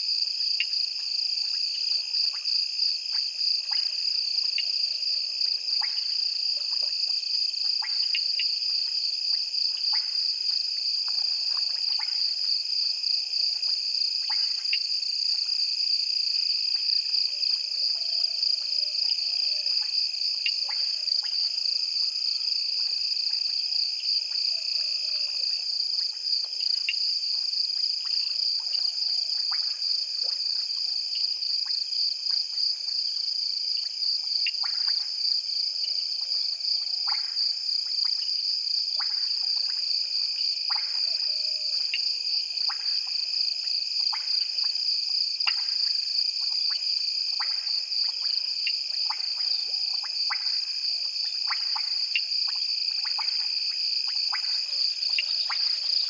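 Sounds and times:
frog clicks and calls: 0:28.0 - 0:32.6, 0:34.2 - 0:35.1, 0:36.3 - 0:38.3, 0:39.0 - 0:39.9, 0:40.6 - 0:56.0.

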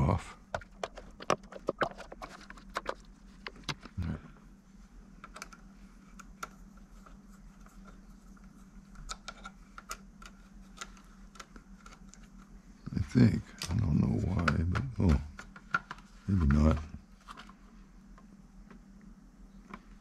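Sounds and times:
faint steady hum: 0:00.0 - 0:20.0
clicks of plastic case handling: 0:00.5 - 0:04.0.

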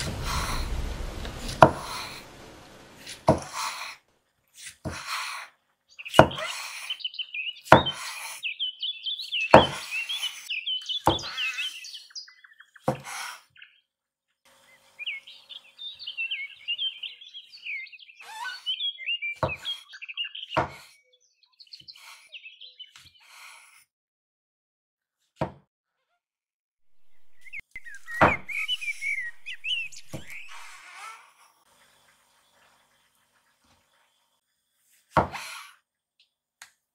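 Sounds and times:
small bird chirping: 0:05.9 - 0:13.9, 0:14.5 - 0:23.4, 0:26.9 - 0:34.9
cleaver chopping on wooden board: 0:06.1 - 0:06.5, 0:07.7 - 0:08.0, 0:09.5 - 0:09.8, 0:11.1 - 0:11.3, 0:20.6 - 0:20.9, 0:25.4 - 0:25.6, 0:35.1 - 0:35.5.

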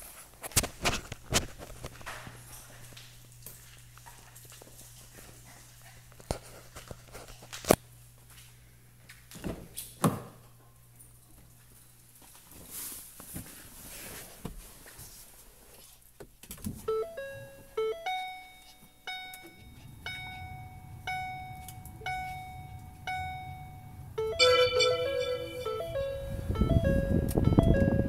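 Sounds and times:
car dashboard chimes: 0:16.9 - 0:28.0
low steady rumble: 0:17.0 - 0:28.0.

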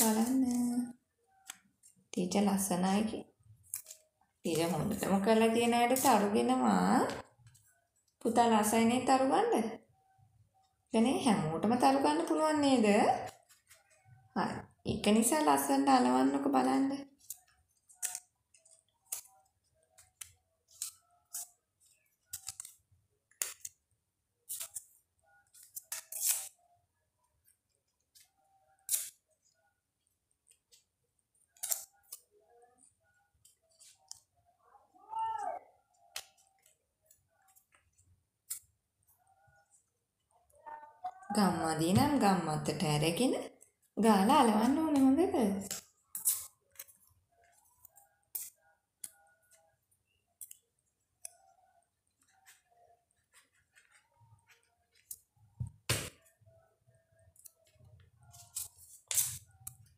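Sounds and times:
paper rustling and crinkling: 0:52.2 - 0:56.2.

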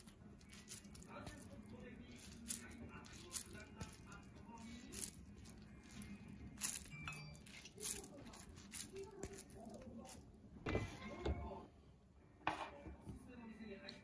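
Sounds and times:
wet hands squishing rice: 0:00.0 - 0:10.3.

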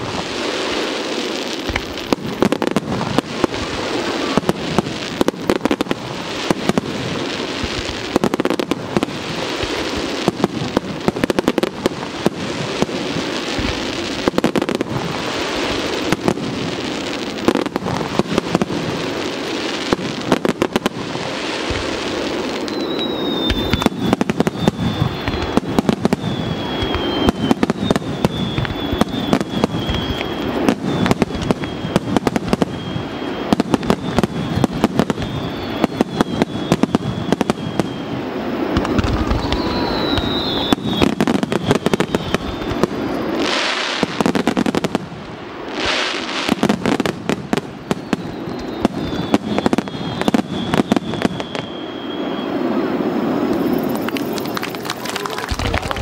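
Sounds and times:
fireworks bangs and crackles: 0:00.0 - 0:56.0
high whistle sinking in pitch: 0:22.6 - 0:43.4, 0:47.8 - 0:55.0.

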